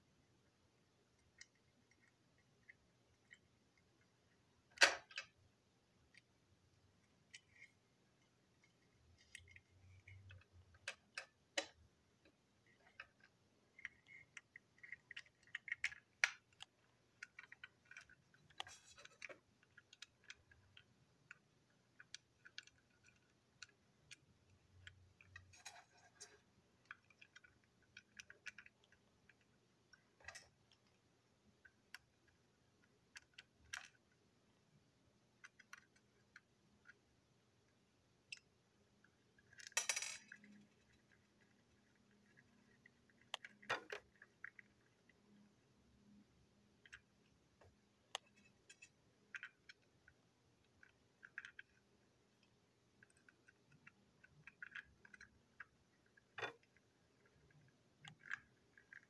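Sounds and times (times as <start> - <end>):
plastic toy parts clicking: 4.7 - 5.4, 9.1 - 11.8, 12.7 - 29.5, 31.6 - 34.0, 35.4 - 37.0, 39.3 - 44.9, 48.1 - 51.8, 52.4 - 59.0.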